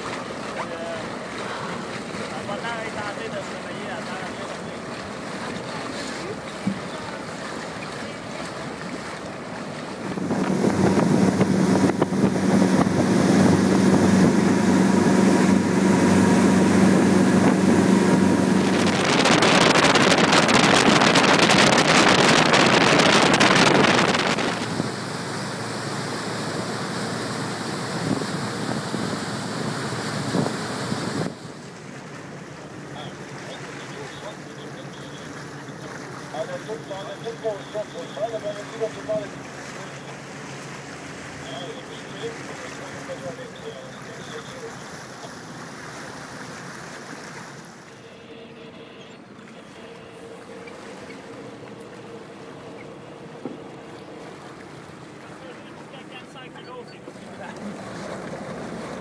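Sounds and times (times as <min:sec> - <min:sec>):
boat wake hissing: 0:00.0 - 0:59.0
outboard motor running: 0:00.0 - 0:59.0
wind buffeting microphone: 0:10.0 - 0:24.8.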